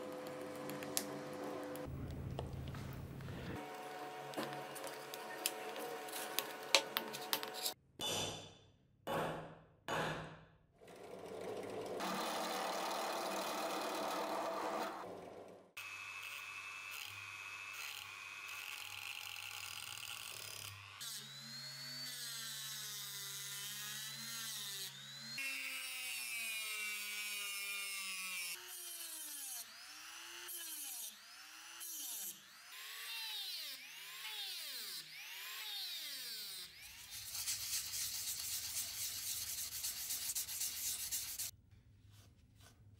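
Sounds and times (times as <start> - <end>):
rotary tool grinding metal: 4.7 - 7.8.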